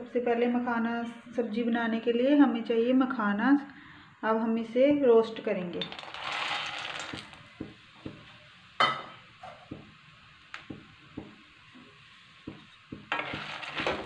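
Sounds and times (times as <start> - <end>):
nuts poured into a pan: 5.8 - 7.5, 13.1 - 14.0
faint sizzle with pops: 7.1 - 14.0.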